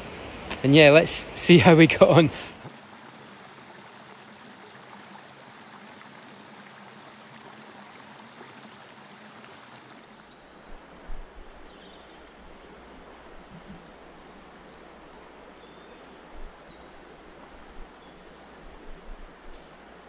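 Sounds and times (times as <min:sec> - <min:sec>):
river flowing over rocks: 0:00.0 - 0:10.8.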